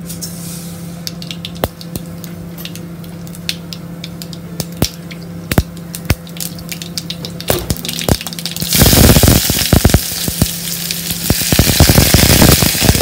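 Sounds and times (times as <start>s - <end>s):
seeds popping: 3.0s - 13.0s
seeds sizzling in hot oil: 3.3s - 13.0s.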